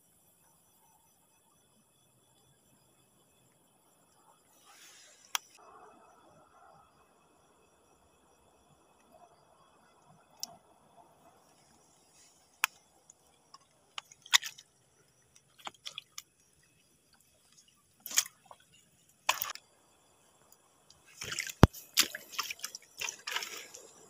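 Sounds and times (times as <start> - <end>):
footsteps on wet rocks: 18.0 - 18.6, 19.3 - 19.6, 21.2 - 24.0.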